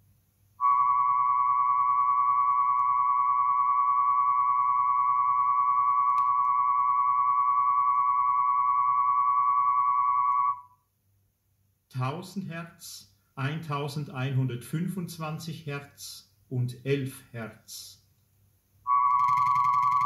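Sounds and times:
wavering high test tone: 0.6s - 10.7s, 18.9s - 20.0s.

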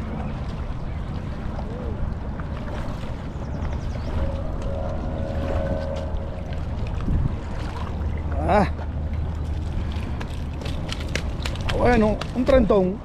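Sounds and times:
river water: 0.0s - 13.0s
wind buffeting microphone: 0.0s - 13.0s
faint drawn-out tone: 3.8s - 8.1s.

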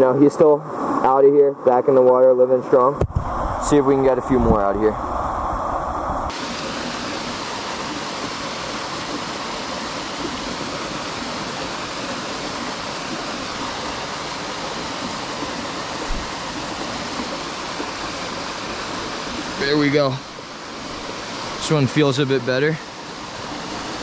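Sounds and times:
low thump: 3.0s - 3.3s, 16.1s - 16.3s
waterfall pouring into a pool: 6.3s - 24.0s.

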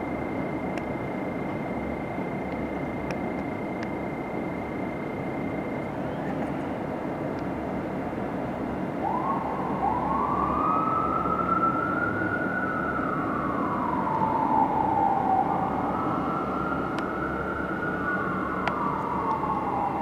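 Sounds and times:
city traffic noise: 0.0s - 20.0s
fire truck siren wailing: 9.0s - 20.0s.

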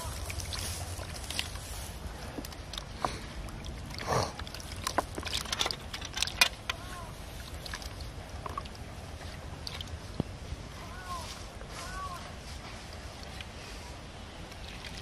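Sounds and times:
water splash: 0.0s - 1.9s
wet net clicks and rustles: 0.0s - 8.9s.

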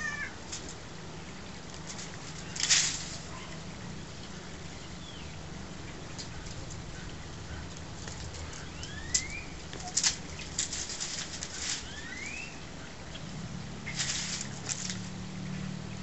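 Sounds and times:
steady low hum: 0.0s - 16.0s
sharp scrapes and clatters: 1.7s - 3.5s, 8.0s - 12.0s, 13.9s - 15.1s
bird chirping: 3.3s - 10.6s, 11.2s - 14.0s.

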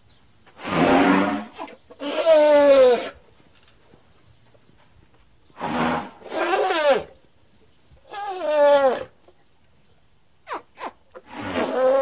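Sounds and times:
baby elephant crying: 1.6s - 3.2s, 10.5s - 12.0s.

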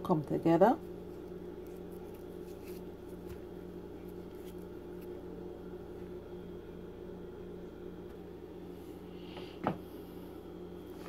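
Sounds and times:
low electrical hum: 0.0s - 11.0s
hand rustling dough in bowl: 0.8s - 6.3s.

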